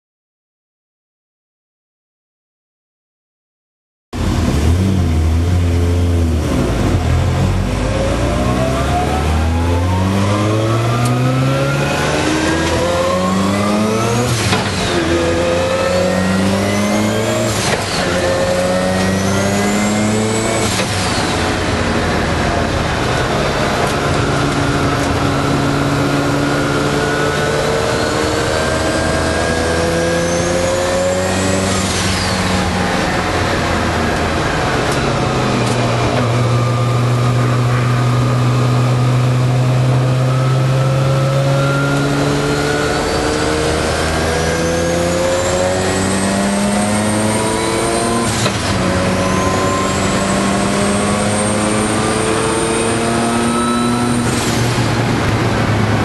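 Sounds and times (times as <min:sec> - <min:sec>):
car engine accelerating hard: 0:04.2 - 0:56.0.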